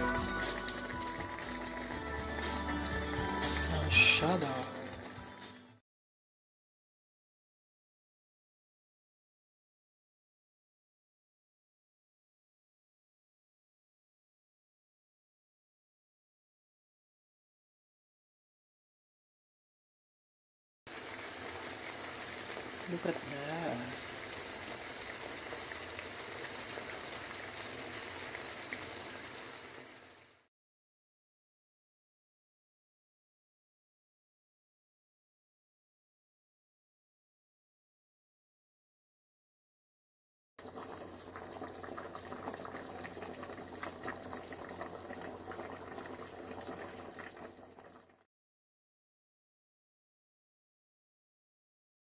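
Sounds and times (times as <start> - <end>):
sauce simmering with bubbling hiss: 0.0 - 3.6, 20.9 - 30.5, 40.6 - 48.2
faint popping in pan: 40.6 - 48.2.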